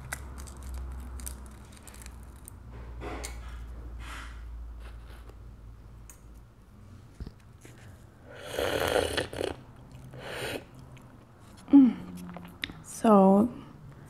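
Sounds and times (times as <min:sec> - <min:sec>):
noisy slurping sips: 0:08.2 - 0:10.9.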